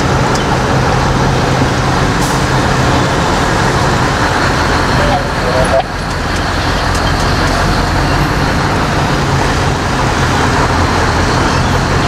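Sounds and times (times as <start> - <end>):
road traffic noise: 0.0 - 12.0
truck diesel engine droning: 0.0 - 12.0.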